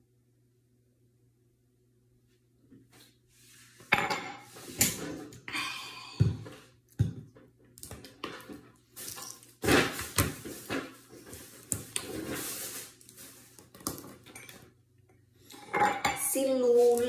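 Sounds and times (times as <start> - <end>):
rustling: 9.0 - 13.8.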